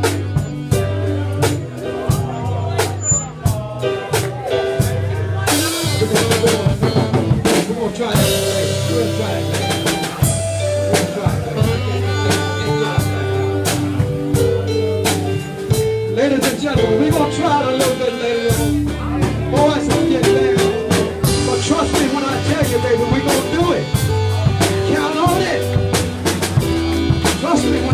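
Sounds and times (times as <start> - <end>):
drum kit beat: 0.0 - 27.9
keyboard: 0.0 - 27.9
live blues band: 0.0 - 27.9
electric guitar: 3.4 - 27.9.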